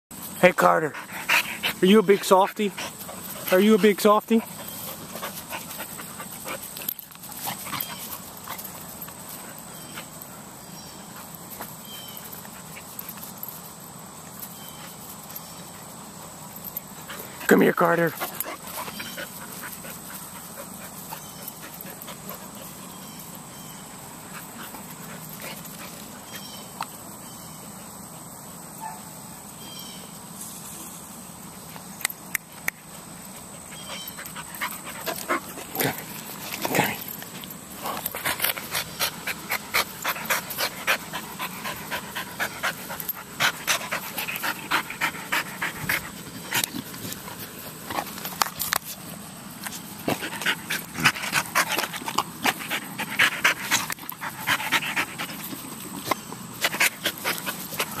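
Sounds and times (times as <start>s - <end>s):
dog panting rapidly: 0.6s - 13.2s, 16.8s - 23.5s, 33.3s - 48.2s, 49.8s - 58.0s.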